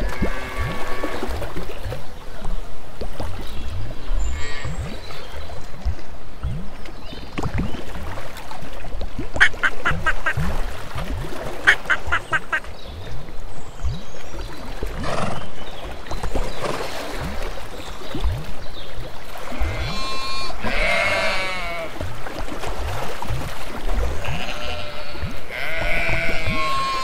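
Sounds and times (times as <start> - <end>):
ducks quacking: 9.4 - 10.5, 11.6 - 12.8, 19.6 - 22.0, 24.2 - 27.0.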